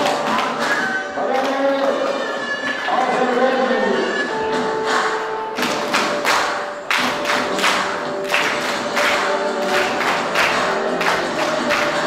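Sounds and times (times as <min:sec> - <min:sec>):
people clapping along: 0:00.0 - 0:03.7, 0:04.8 - 0:12.0
song with singing: 0:08.9 - 0:12.0.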